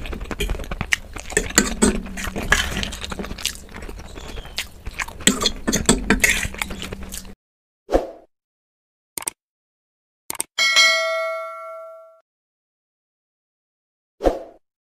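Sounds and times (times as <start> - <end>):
noodles being slurped: 0.0 - 7.4
wet chewing: 0.0 - 7.4.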